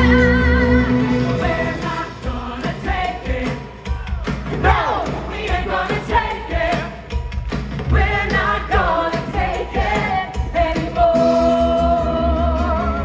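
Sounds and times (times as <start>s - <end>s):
live rock band playing: 0.0s - 2.2s
sung vocals: 0.0s - 7.2s, 7.9s - 13.0s.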